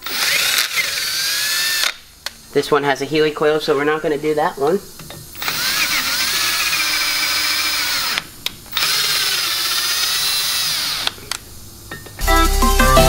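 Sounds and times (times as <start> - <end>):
power drill whining: 0.0 - 2.0, 5.4 - 11.2.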